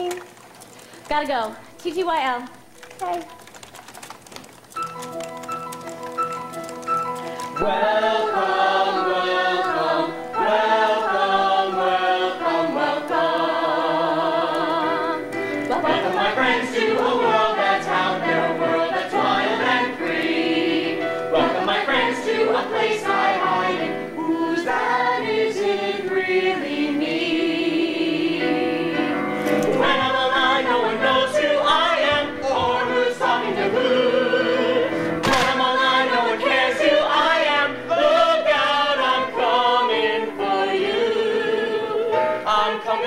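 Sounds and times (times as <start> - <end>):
voices singing in harmony: 7.4 - 43.0.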